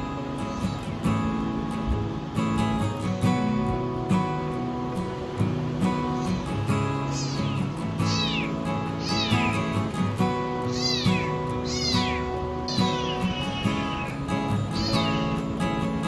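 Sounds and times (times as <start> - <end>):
kitten meowing: 7.1 - 9.7, 10.7 - 15.4.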